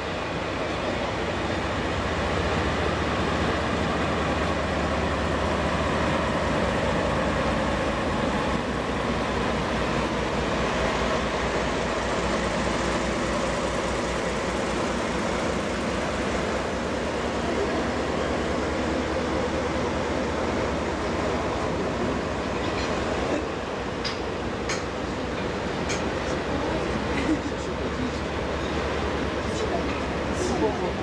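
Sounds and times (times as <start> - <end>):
locomotive engine droning: 0.0 - 31.0
train wheels rolling on rails: 0.0 - 31.0.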